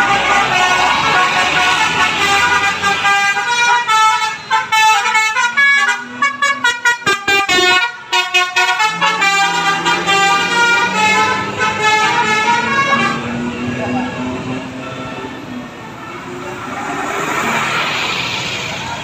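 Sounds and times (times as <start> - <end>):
multi-tone air horn playing a tune: 0.0 - 13.5.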